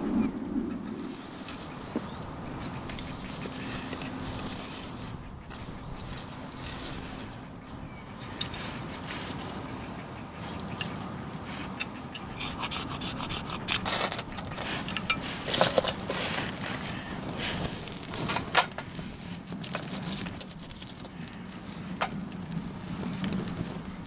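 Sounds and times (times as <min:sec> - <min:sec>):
tinder crackling as it burns: 0:13.8 - 0:24.0.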